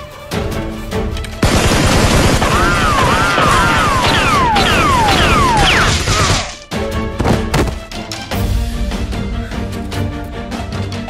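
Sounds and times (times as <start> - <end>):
background music: 0.0 - 11.0
rapid toy-gun fire: 1.4 - 6.6.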